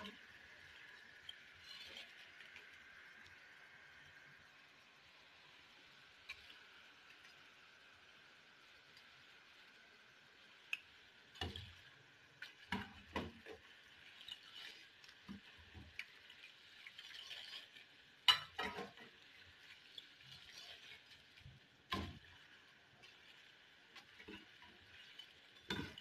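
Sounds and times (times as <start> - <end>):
deep-frying sizzle: 0.0 - 26.0
metal spoon clinking on pan: 18.3 - 19.0.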